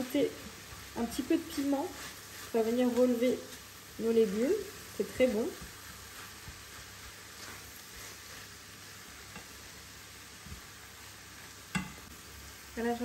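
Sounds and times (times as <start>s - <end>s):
vegetables sizzling in a pan: 0.0s - 13.0s
spatula scraping a pan: 0.6s - 9.8s.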